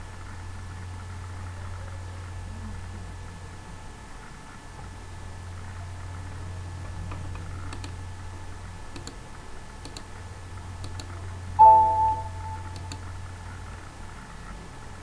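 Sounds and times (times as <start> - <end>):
steady low hum: 0.0 - 15.0
computer mouse clicks: 7.1 - 8.0, 8.9 - 9.2, 9.8 - 10.1, 10.8 - 11.2, 12.7 - 13.0
multi-tone chime: 11.6 - 12.8.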